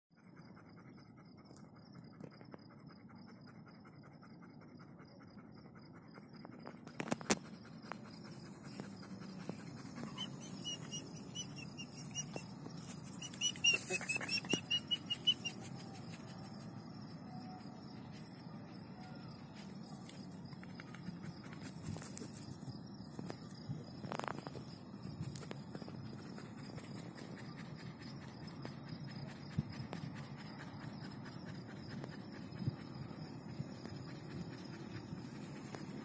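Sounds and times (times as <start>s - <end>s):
night insects chirping: 0.2s - 36.0s
pet animal short pitched calls: 13.0s - 15.7s.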